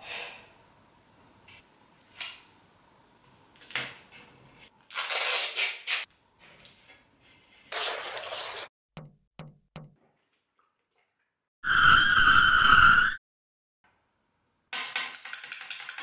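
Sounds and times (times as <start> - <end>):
adhesive tape ripped off roll: 4.9 - 6.1.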